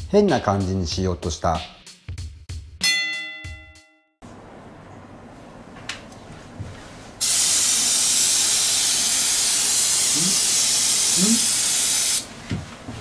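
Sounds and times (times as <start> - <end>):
aerosol spray can hissing: 7.2 - 12.3.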